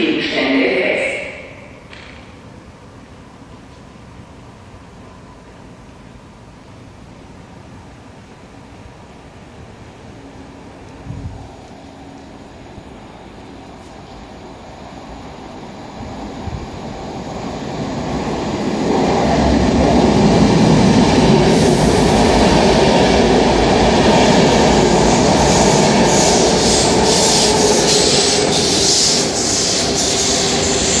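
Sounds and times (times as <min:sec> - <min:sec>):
train rumbling past: 0:00.0 - 0:31.0
pulsing hiss of locomotive: 0:21.4 - 0:22.4, 0:24.2 - 0:31.0.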